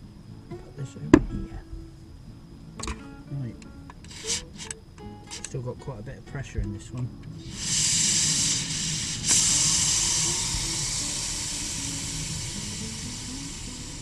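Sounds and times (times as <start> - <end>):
steam hissing from pressure cooker: 4.0 - 5.5, 7.4 - 14.0.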